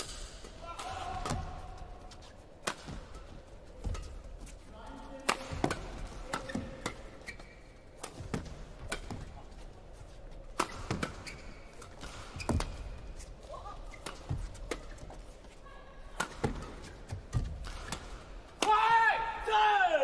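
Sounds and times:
badminton rackets hitting shuttlecock: 0:00.0 - 0:04.5, 0:05.1 - 0:09.7, 0:10.3 - 0:15.3, 0:16.0 - 0:18.9
shoes squeaking on floor: 0:06.4 - 0:07.9, 0:10.0 - 0:15.8.

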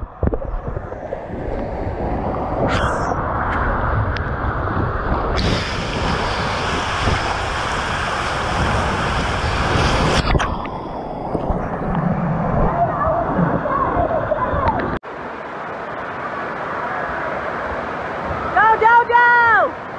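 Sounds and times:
water rushing and sloshing: 0:00.0 - 0:19.9
water spraying over microphone: 0:05.3 - 0:10.6.

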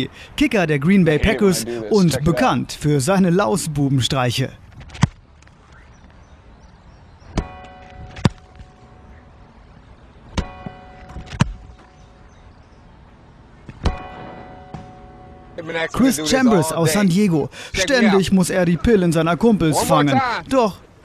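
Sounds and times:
football kick thump with clang: 0:13.8 - 0:15.0.

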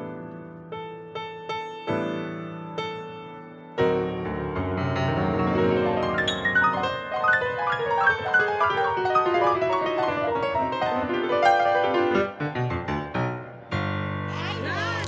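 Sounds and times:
pianos playing fast runs: 0:03.8 - 0:15.0.

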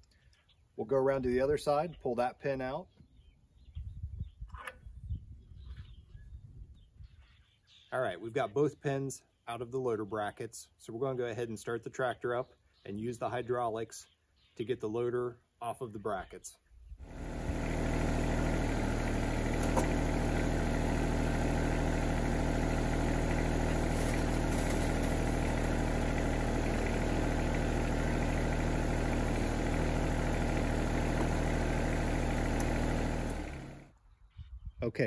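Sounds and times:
diesel tractor engine running: 0:17.0 - 0:33.9.

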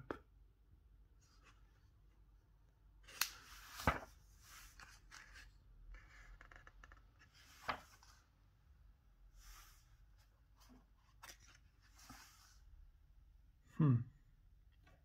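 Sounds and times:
book pages rustling: 0:03.1 - 0:08.3, 0:09.5 - 0:12.6.

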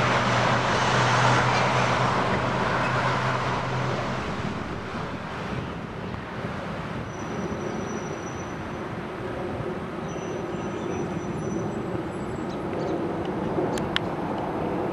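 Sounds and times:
low hum: 0:00.0 - 0:06.1
road traffic rumble: 0:00.0 - 0:14.9.

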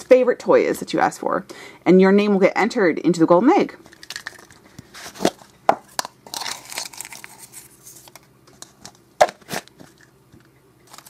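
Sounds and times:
plastic halves scraping: 0:03.9 - 0:10.0.

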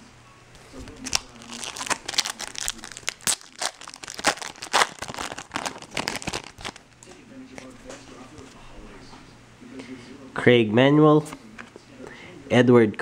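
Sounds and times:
foil wrapper tearing and crinkling: 0:01.0 - 0:07.0.

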